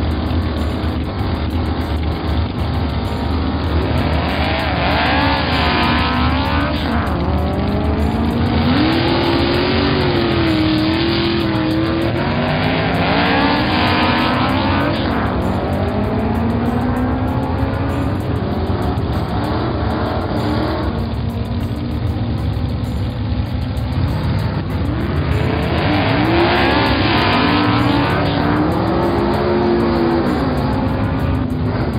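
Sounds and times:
race car engines revving: 0.0s - 31.9s.

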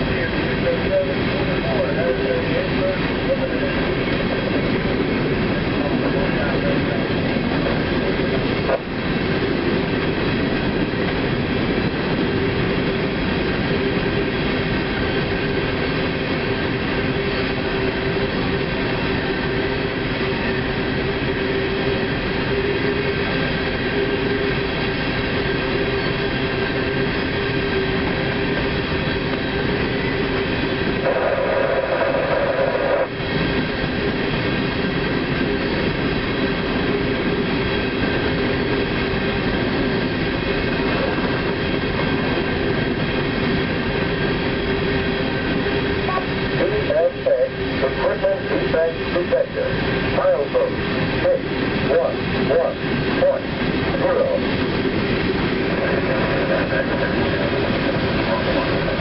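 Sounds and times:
freight train wheels rumbling: 0.0s - 59.0s
steady tone: 12.6s - 59.0s.

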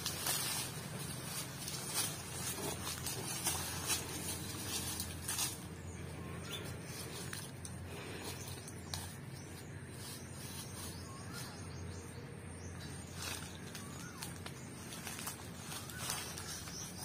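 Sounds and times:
dry leaves crackling: 0.0s - 17.0s
steady background hiss: 0.0s - 17.0s
faint bird chirps: 8.1s - 17.0s.

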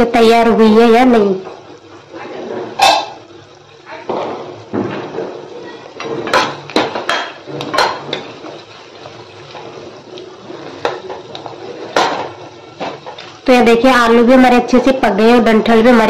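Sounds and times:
metal spoon scraping a pan: 2.2s - 3.2s, 5.1s - 13.4s.

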